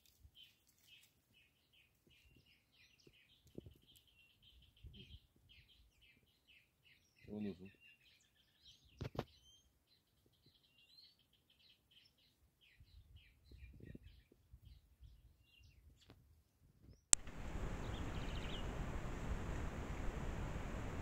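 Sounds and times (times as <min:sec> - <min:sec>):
bird chirps and tweets: 0:00.3 - 0:16.2, 0:16.9 - 0:18.8
steady microphone hiss: 0:17.2 - 0:21.0.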